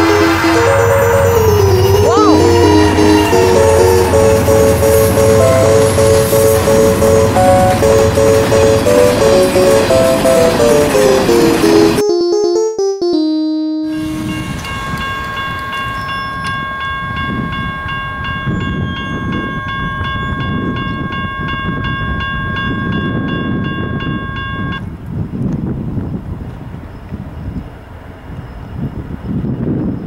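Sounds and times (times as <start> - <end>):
railroad crossing warning bell: 0.0 - 12.1, 13.2 - 24.9
piano-like music: 0.0 - 16.2.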